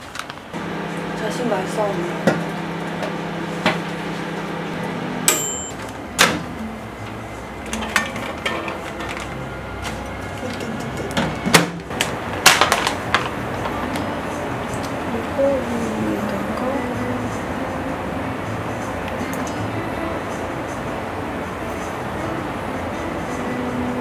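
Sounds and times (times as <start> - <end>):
microwave oven humming: 0.0 - 24.0
timer bell ding: 5.3 - 5.9.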